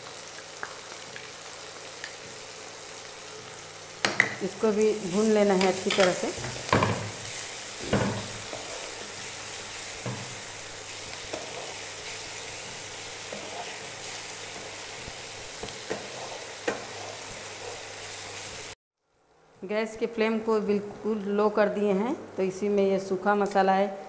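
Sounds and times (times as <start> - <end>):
food sizzling in hot oil: 0.0 - 19.4
wooden spatula scraping pan: 5.7 - 9.2, 11.2 - 12.0, 13.2 - 14.7, 15.6 - 17.9.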